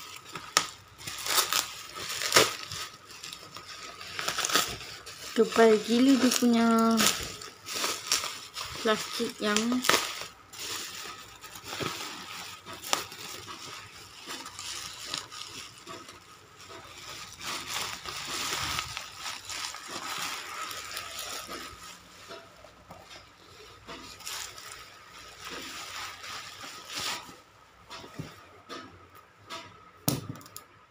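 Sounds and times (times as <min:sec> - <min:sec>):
sharp crackles: 0:00.0 - 0:22.4
bubble wrap crinkling: 0:00.0 - 0:28.5.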